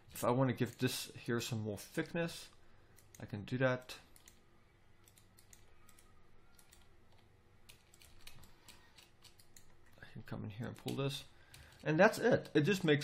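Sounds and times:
computer keyboard clicks: 0:04.1 - 0:04.4, 0:05.0 - 0:10.0.

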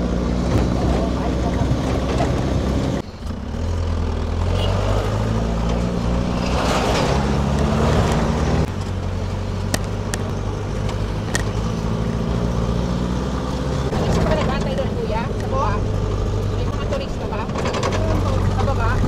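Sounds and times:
vehicle engine running: 0:00.0 - 0:19.0
wind and road noise: 0:00.0 - 0:19.0
sharp knocks and rattles: 0:13.9 - 0:19.0.

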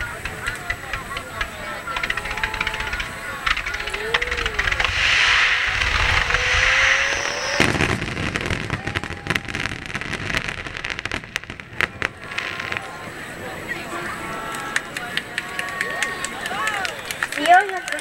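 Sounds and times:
crackling of bursting shells: 0:00.0 - 0:13.0
firework bang: 0:00.1 - 0:13.4
firework rising whistle: 0:03.7 - 0:11.1.

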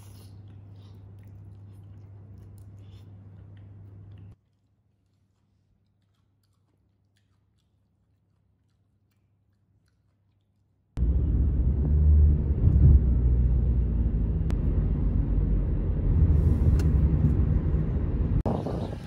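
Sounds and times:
wind buffeting microphone: 0:16.3 - 0:19.0.

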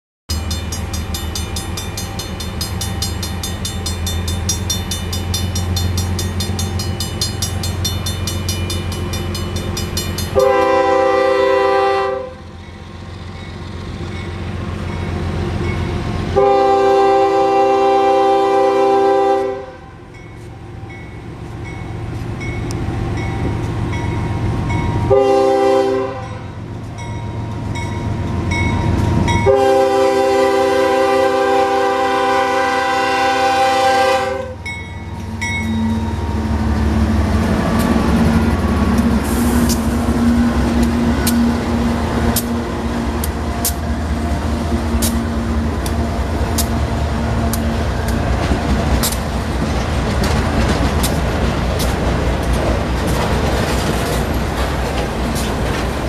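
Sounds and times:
railroad crossing bell ringing: 0:00.3 - 0:11.3, 0:12.2 - 0:16.8, 0:19.7 - 0:31.4, 0:33.7 - 0:41.6
freight train rumble: 0:00.3 - 0:56.0
locomotive air horn blasts: 0:10.3 - 0:12.5, 0:16.3 - 0:20.1, 0:25.1 - 0:26.6, 0:29.4 - 0:34.7.

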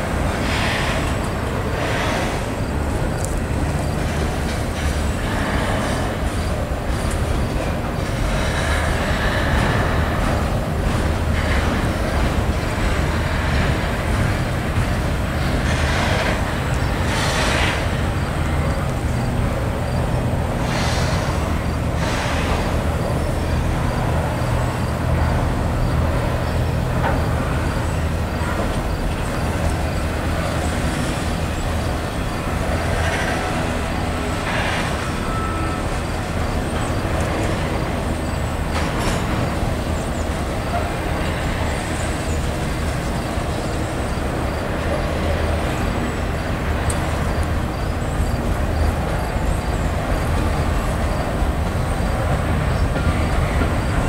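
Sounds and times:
freight train rumbling on rails: 0:00.0 - 0:54.0
sharp clanks from train cars: 0:00.0 - 0:54.0.

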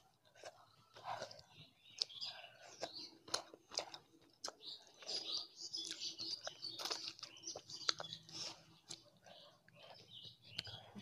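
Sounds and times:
close chewing with wet clicks: 0:00.0 - 0:11.0.

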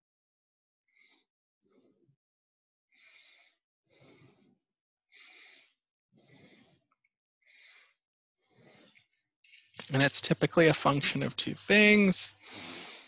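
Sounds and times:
person breathing quietly: 0:00.9 - 0:02.1, 0:02.9 - 0:09.3, 0:12.3 - 0:13.0.

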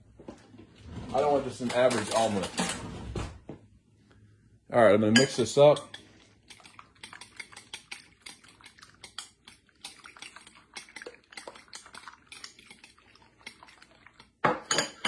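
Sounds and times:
fork beating eggs in bowl: 0:05.2 - 0:14.4.

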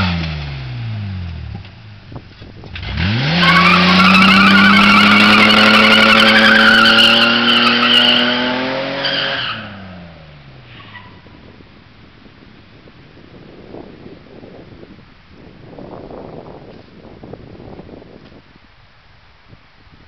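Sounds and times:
engine revving high: 0:02.8 - 0:09.9
tyres squealing: 0:03.3 - 0:08.4.

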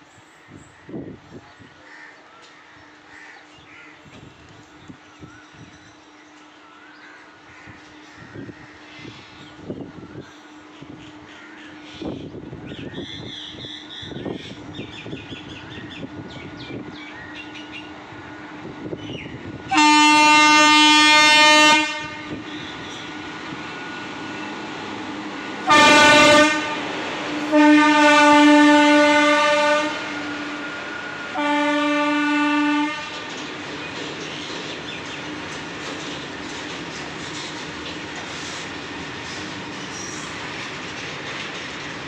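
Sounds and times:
locomotive horn blasts: 0:19.7 - 0:22.4, 0:25.6 - 0:33.2
freight wagons clattering on rails: 0:33.2 - 0:42.0.

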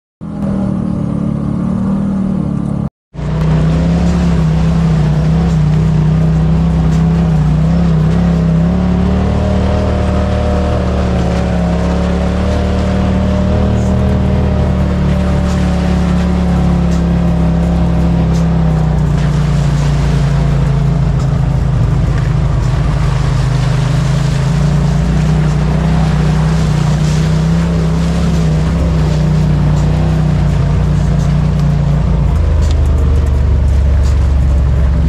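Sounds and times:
vehicle engine running: 0:00.2 - 0:35.0.

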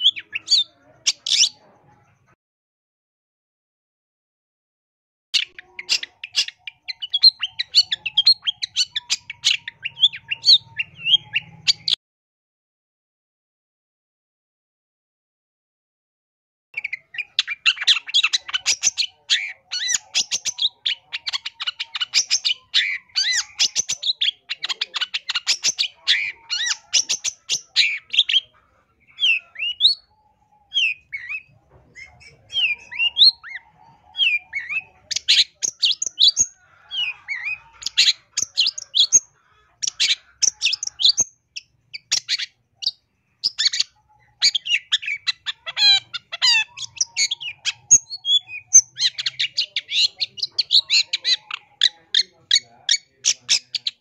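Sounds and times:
shrike singing: 0:16.8 - 0:54.0.

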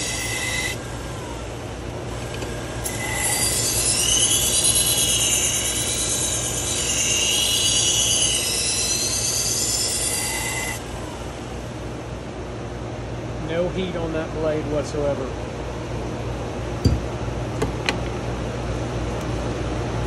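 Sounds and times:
knife grinding on belt squeal: 0:00.0 - 0:00.8, 0:02.8 - 0:10.8
dust collector and fans drone: 0:00.0 - 0:20.0.

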